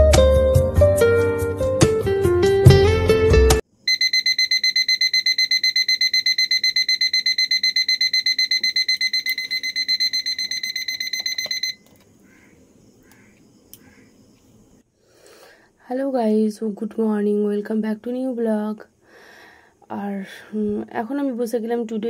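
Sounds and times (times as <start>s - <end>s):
alarm clock beeping rapidly: 3.9s - 11.8s.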